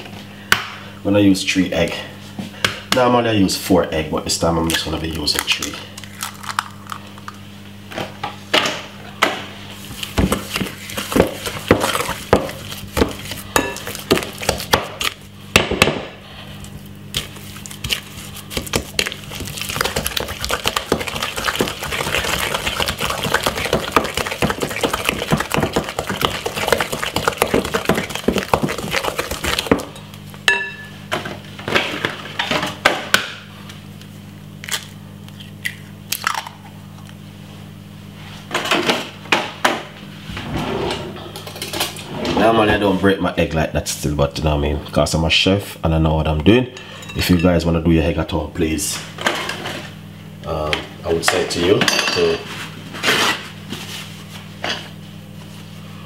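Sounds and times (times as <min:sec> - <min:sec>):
fast continuous stirring: 0:10.0 - 0:15.3, 0:17.1 - 0:30.0.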